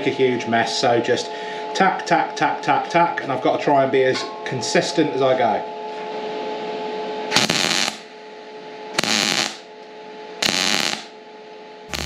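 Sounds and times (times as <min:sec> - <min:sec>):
steady hum: 0:00.0 - 0:12.0
welder crackling bursts: 0:07.3 - 0:08.0, 0:09.0 - 0:09.6, 0:10.4 - 0:11.1.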